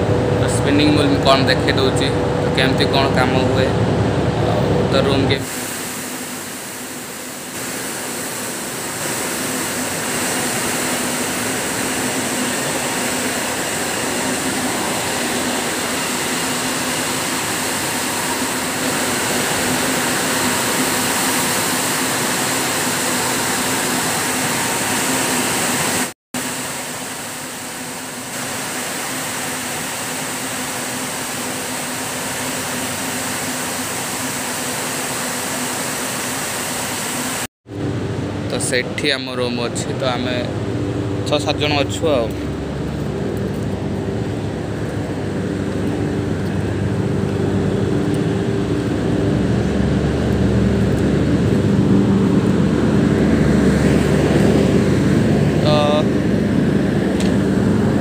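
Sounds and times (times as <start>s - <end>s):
spinning machines whirring: 0.1s - 37.3s
low hum: 37.7s - 58.0s.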